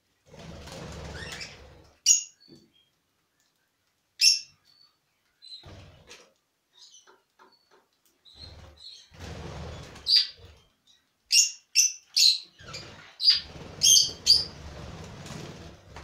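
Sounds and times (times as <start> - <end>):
wings fluttering: 0.2 - 1.9, 8.4 - 10.6, 12.6 - 16.0
budgerigars chirping: 10.1 - 10.5, 11.3 - 14.6.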